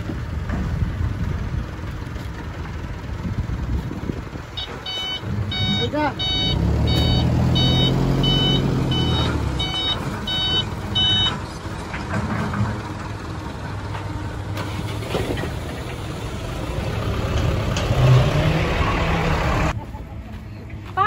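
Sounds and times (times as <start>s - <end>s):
truck engine running: 0.0s - 21.0s
reversing alarm beeping: 4.6s - 11.4s.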